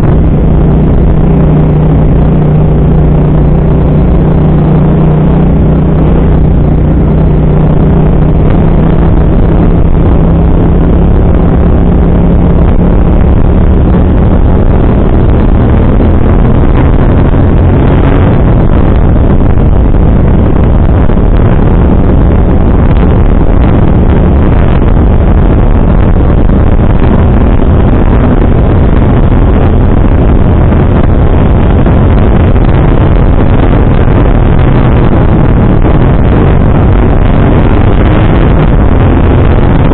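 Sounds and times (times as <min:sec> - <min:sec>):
motorcycle engine hum: 0:00.0 - 0:39.9
wind rush on microphone: 0:00.0 - 0:39.9.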